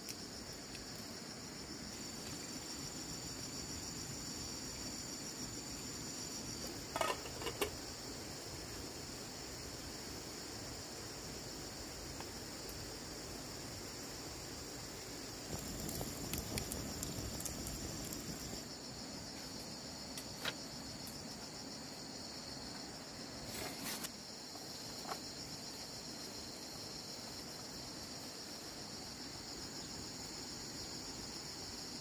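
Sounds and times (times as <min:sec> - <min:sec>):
insects chirring: 0:00.0 - 0:32.0.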